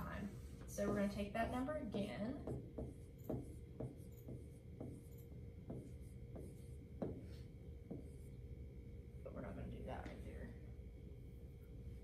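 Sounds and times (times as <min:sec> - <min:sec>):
pen tapping and scratching on screen: 0:01.4 - 0:08.5.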